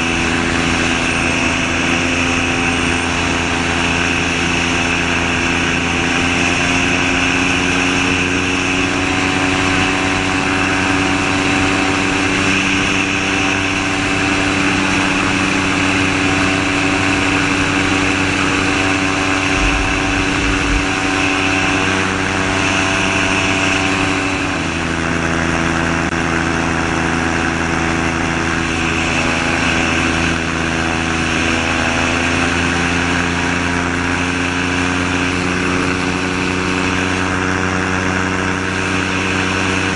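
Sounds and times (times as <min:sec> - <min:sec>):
aircraft engine and propeller: 0:00.0 - 0:39.9
wind rushing: 0:17.5 - 0:24.3.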